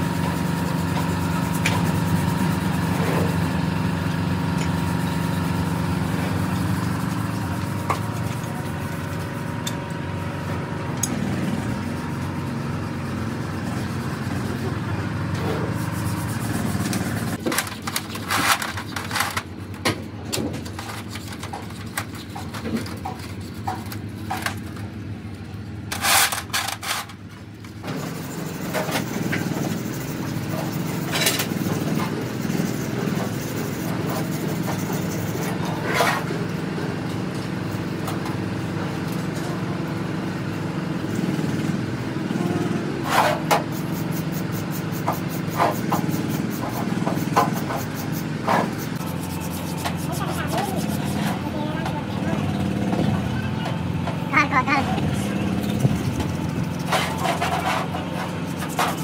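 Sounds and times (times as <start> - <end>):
engine humming: 0.0 - 59.0
metal parts clinking and scraping: 17.4 - 19.5, 25.9 - 27.2, 56.0 - 59.0.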